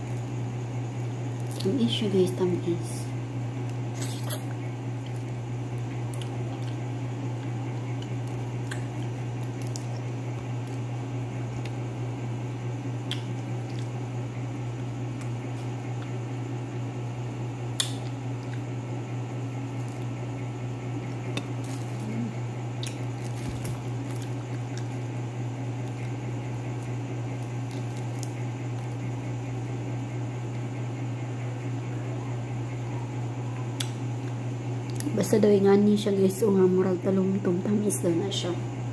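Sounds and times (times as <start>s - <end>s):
steady low hum: 0.0s - 38.9s
fingers peeling fruit: 3.6s - 11.8s, 13.0s - 14.0s, 17.7s - 18.7s, 21.0s - 29.6s.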